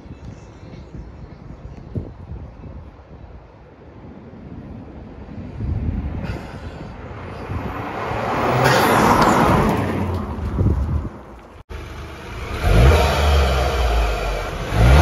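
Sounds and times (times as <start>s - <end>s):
car engine revving: 11.7s - 15.0s.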